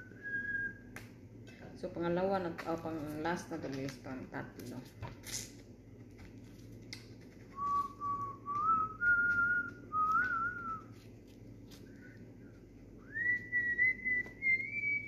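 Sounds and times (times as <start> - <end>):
person whistling a slow tune: 0.0 - 0.8, 7.6 - 10.9, 13.0 - 15.0.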